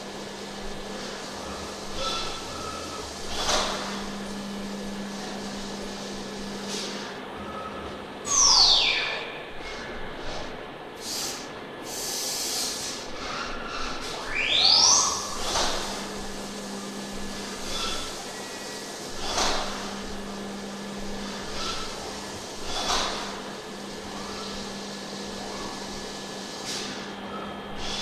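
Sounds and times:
low machine hum: 0.0s - 11.0s, 12.9s - 28.0s
coolant spraying hiss: 11.0s - 13.1s.

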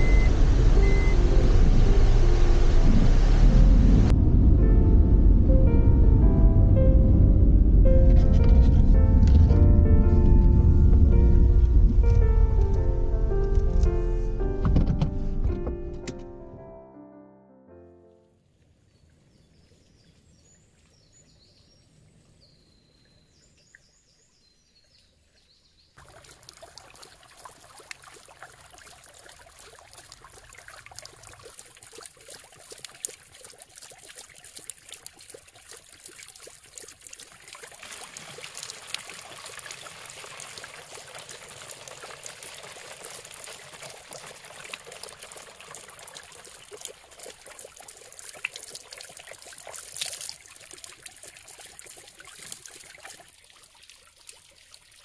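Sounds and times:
spring water trickling: 0.0s - 2.4s, 23.0s - 55.0s.

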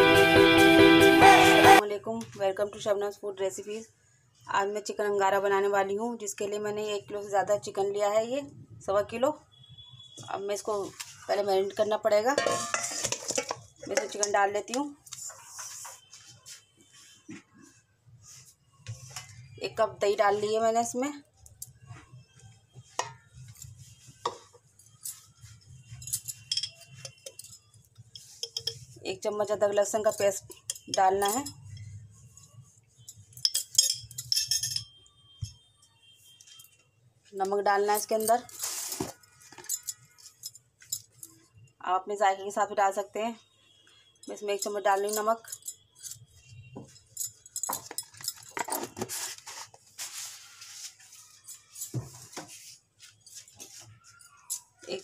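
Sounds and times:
utensils clinking against steel: 12.3s - 14.4s, 25.9s - 28.9s, 29.9s - 31.9s, 33.1s - 35.0s, 38.0s - 41.4s, 44.3s - 49.5s.

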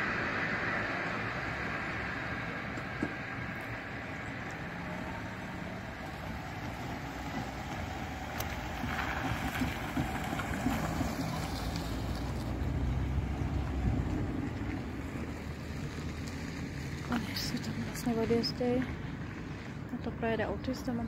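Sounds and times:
cars driving past: 0.0s - 21.0s
wind buffeting microphone: 1.2s - 20.2s.

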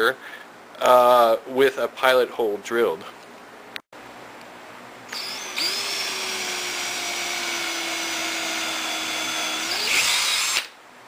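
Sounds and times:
power drill whining into wood: 5.1s - 10.8s.

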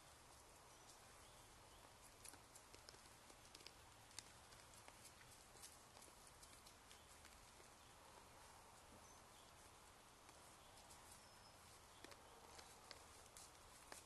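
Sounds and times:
faint steady hiss: 0.0s - 14.0s
faint clicks: 1.8s - 7.7s, 11.9s - 14.0s.

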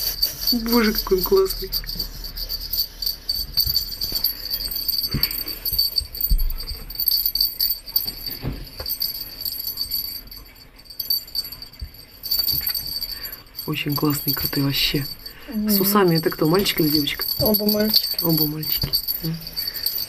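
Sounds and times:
small bell jingling: 0.0s - 20.0s.

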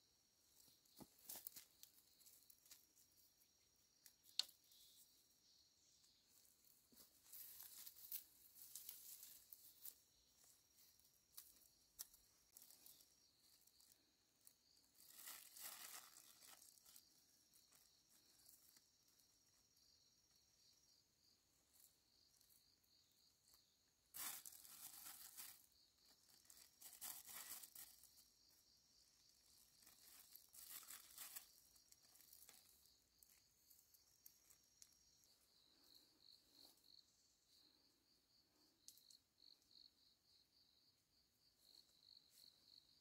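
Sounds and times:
insects chirring: 0.0s - 43.0s
rustling and crinkling: 0.4s - 5.1s, 6.0s - 19.4s, 23.5s - 37.0s.

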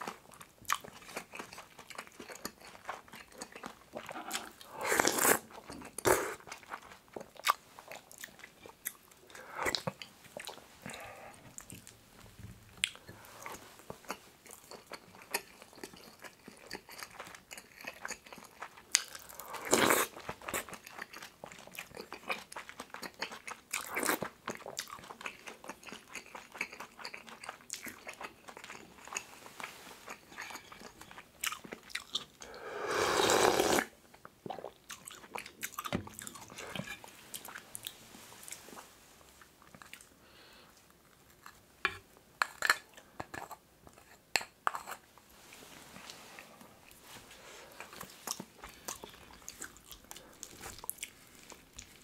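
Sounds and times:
chewing and mouth noises: 0.0s - 12.0s, 12.7s - 32.6s, 33.6s - 40.2s, 42.4s - 52.0s
loud slurp of broth: 4.8s - 5.4s, 32.5s - 33.9s.

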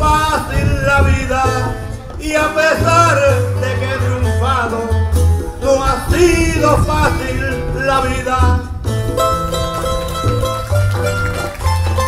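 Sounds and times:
man singing: 0.0s - 8.9s
acoustic guitar: 0.0s - 12.0s
steady bass line: 0.0s - 12.0s.

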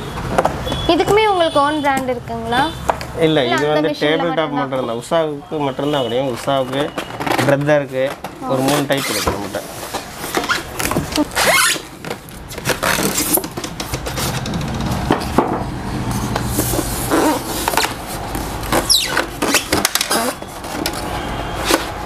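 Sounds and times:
cardboard and foam packing rustling: 5.0s - 15.5s, 16.3s - 22.0s.

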